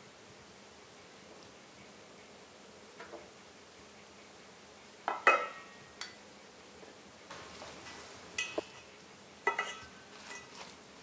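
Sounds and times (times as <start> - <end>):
soft stirring of salad: 7.3 - 11.0
wooden spoons knocking steel bowl: 7.8 - 8.9, 9.5 - 10.5.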